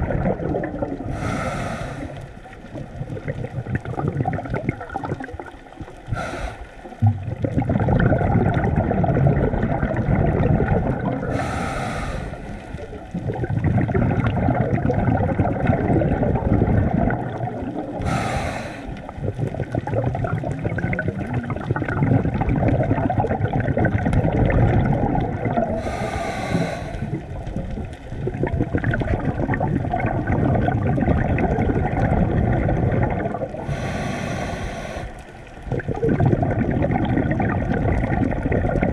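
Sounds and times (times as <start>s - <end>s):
exhaled bubbles rushing: 0.0s - 38.9s
regulator hissing inhale: 1.1s - 2.4s, 6.1s - 6.9s, 11.3s - 13.0s, 18.0s - 19.2s, 25.8s - 27.3s, 33.6s - 35.4s.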